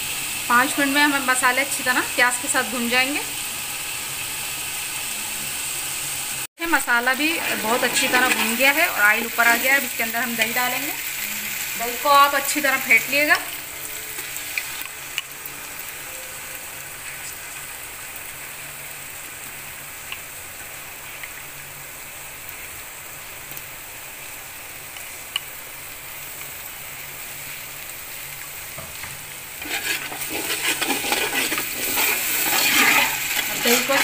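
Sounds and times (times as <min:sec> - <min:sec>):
masala sizzling in hot oil: 0:00.0 - 0:34.0
metal spoon stirring: 0:29.6 - 0:34.0.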